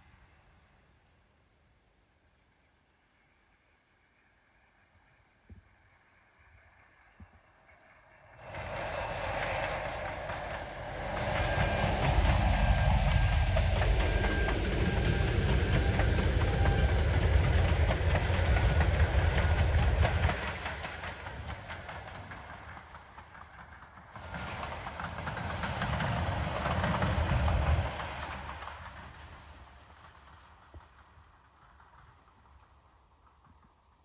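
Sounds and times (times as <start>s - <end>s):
train wheels clicking over rails: 6.5s - 34.0s
diesel train engine rumble: 7.6s - 33.2s.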